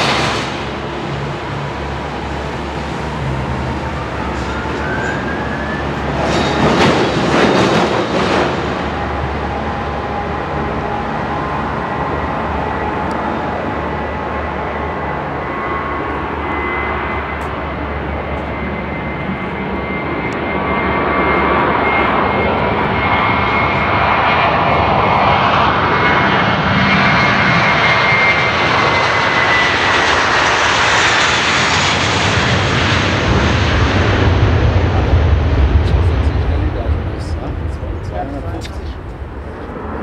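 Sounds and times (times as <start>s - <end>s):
jet airliner roar with high whine: 0.0s - 40.0s
deep rumble: 19.2s - 40.0s.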